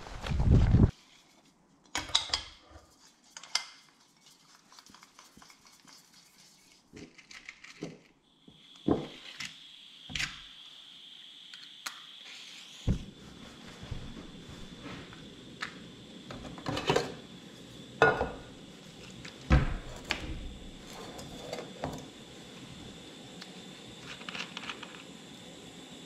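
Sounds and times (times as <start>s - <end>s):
steady high whine: 8.3s - 26.0s
footsteps: 12.9s - 15.2s
pots and utensils clinking: 16.4s - 17.2s, 18.0s - 18.5s.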